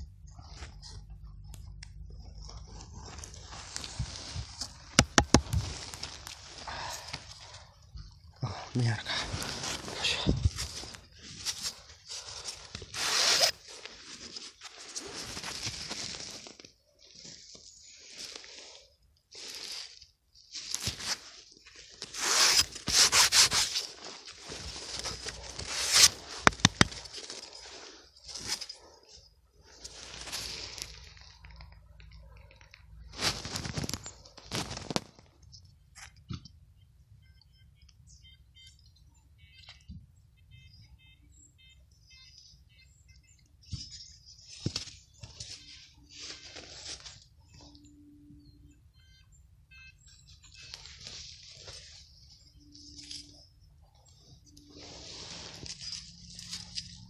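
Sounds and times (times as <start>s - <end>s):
hand tool scraping earth: 9.2s - 31.4s, 54.4s - 57.0s
faint bird chirps: 36.6s - 46.5s, 47.4s - 56.5s.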